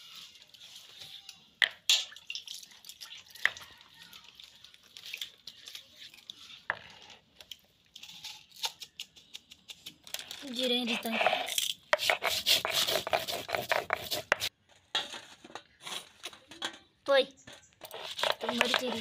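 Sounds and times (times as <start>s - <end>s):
stone roller scraping stone: 10.1s - 14.5s, 17.8s - 19.0s.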